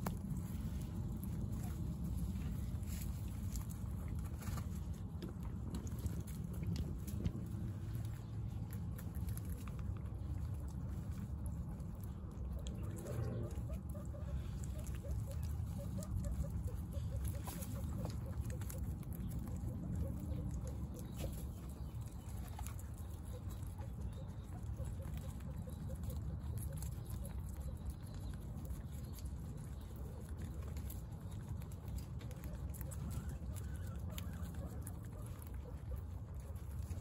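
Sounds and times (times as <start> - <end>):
guinea pigs chewing: 0.0 - 37.0
guinea pig squeak: 12.1 - 37.0.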